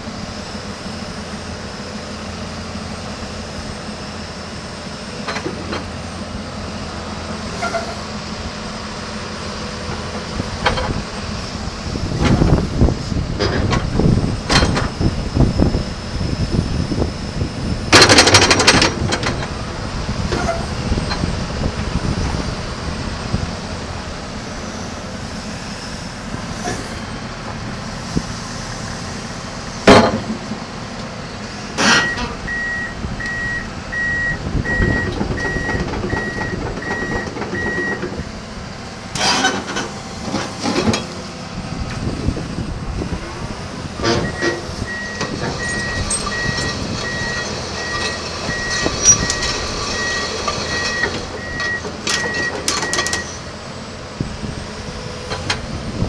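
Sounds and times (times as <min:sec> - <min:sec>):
excavator running: 0:00.0 - 0:56.0
travel alarm beeping: 0:32.0 - 0:38.1, 0:44.2 - 0:53.4.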